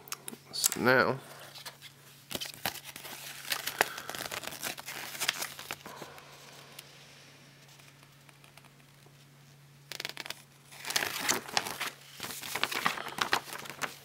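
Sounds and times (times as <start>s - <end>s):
paper leaflet crinkling: 2.3s - 6.1s, 9.9s - 14.0s.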